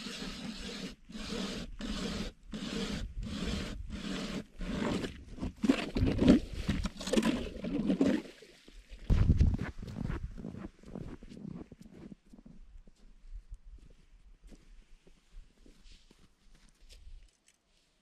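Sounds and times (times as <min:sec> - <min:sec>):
ice auger scraping: 0:00.0 - 0:08.2.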